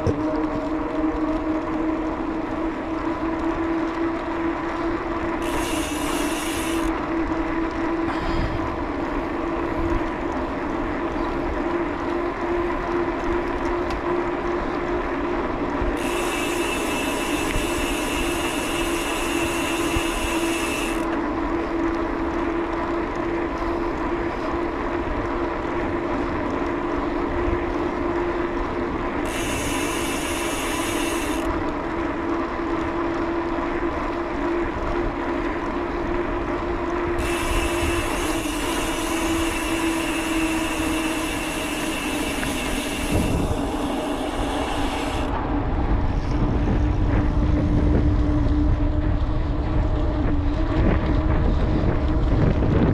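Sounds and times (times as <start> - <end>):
bicycle tyre hum on asphalt: 0.0 - 52.9
road and wind noise: 0.0 - 52.9
freewheel ratchet buzz: 5.4 - 7.0, 16.0 - 21.2, 29.2 - 31.5, 37.2 - 45.4.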